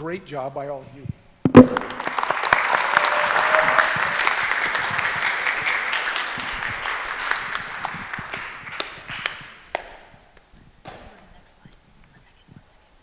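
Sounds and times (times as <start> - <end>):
audience applauding: 1.6 - 9.9.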